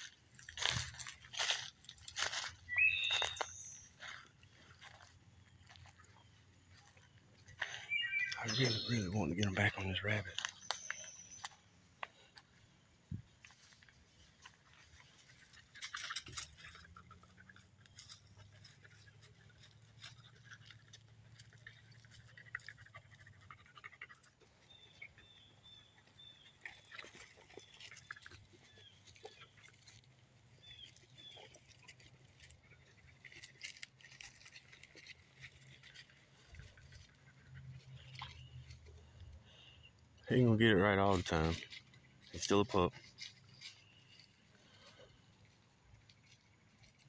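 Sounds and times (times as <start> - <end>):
footsteps through grass: 0.0 - 12.1
short high chirps: 2.7 - 3.9, 7.8 - 9.0.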